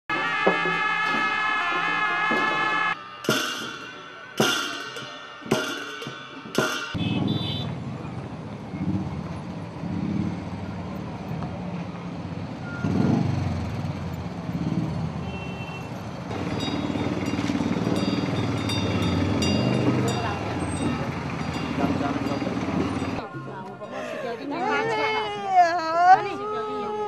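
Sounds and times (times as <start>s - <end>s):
high beeps: 0.1s - 3.2s
motorcycle engines running: 6.9s - 15.2s, 16.0s - 23.2s.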